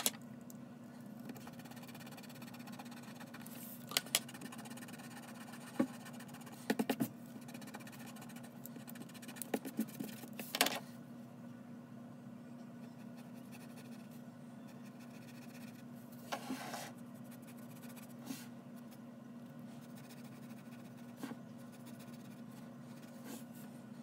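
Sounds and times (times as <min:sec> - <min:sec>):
steady low hum: 0:00.0 - 0:24.0
drawing tool scratching on paper: 0:01.4 - 0:03.5, 0:19.8 - 0:23.5.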